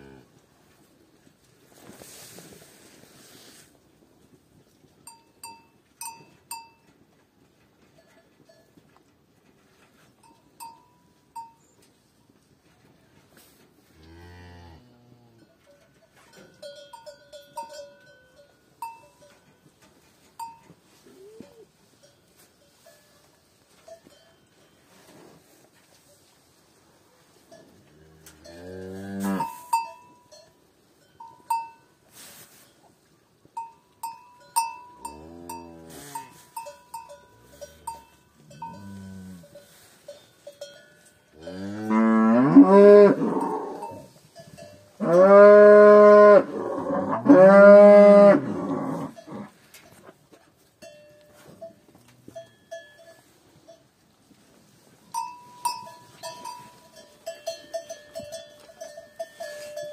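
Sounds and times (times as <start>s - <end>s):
small bell tinkling: 15.7s - 19.6s, 33.6s - 41.3s, 43.8s - 44.9s, 52.4s - 53.8s, 55.1s - 59.9s
calves mooing: 27.9s - 29.7s, 35.0s - 36.4s, 37.4s - 39.6s, 41.4s - 44.2s, 45.0s - 49.6s.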